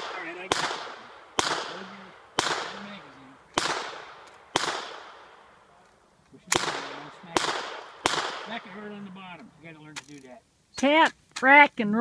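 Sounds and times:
gunshots with echo: 0.0s - 3.0s, 3.6s - 5.4s, 6.5s - 8.8s.

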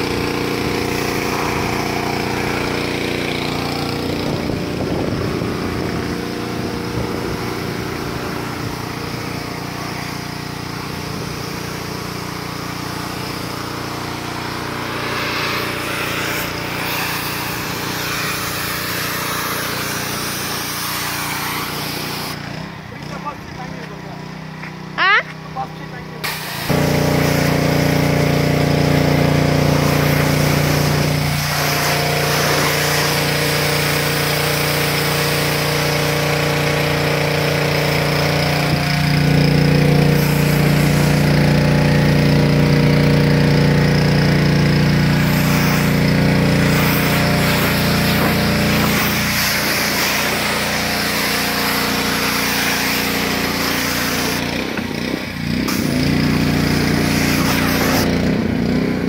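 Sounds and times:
pressure washer motor humming: 0.0s - 59.0s
water jet hissing on car: 6.5s - 22.4s, 26.2s - 42.1s, 44.0s - 58.1s.

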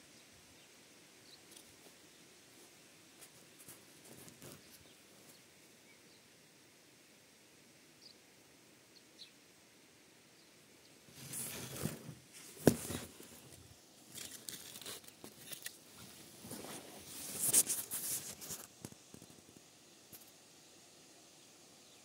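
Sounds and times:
leaves rustling and crinkling: 1.4s - 5.6s, 11.0s - 20.4s.

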